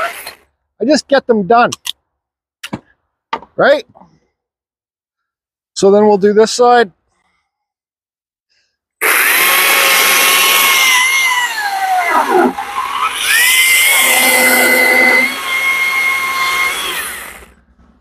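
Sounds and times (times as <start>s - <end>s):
chainsaw cutting wood: 9.0s - 17.6s.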